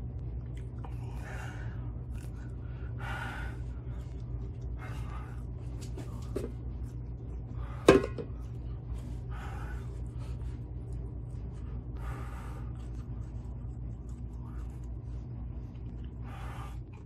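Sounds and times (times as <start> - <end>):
low hum: 0.0 - 17.0
man breathing heavily: 0.8 - 6.5, 7.4 - 13.4, 15.9 - 17.0.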